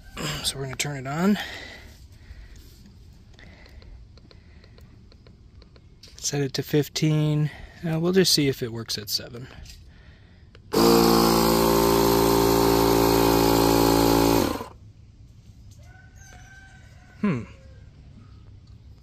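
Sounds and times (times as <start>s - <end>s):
air compressor running: 10.6s - 14.8s.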